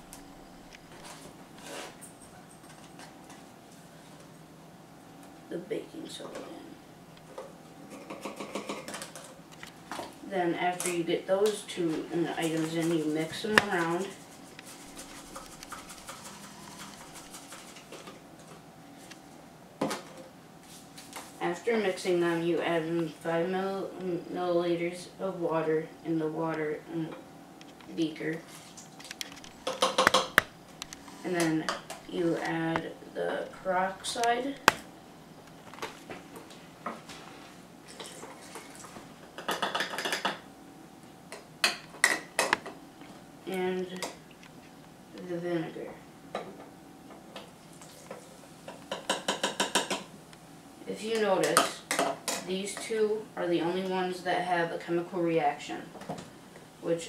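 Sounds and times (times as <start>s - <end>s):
powder rattling in plastic bottle: 13.7s - 17.9s.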